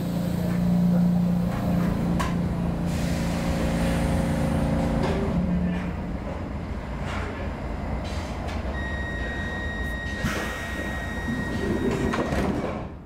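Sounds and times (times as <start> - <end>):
train low rumble: 0.0 - 13.0
high warning tone: 8.8 - 12.3.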